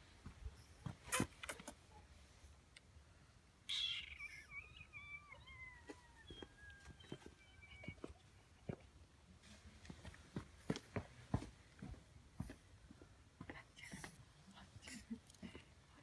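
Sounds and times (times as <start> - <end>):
puppy whining: 3.7 - 8.7.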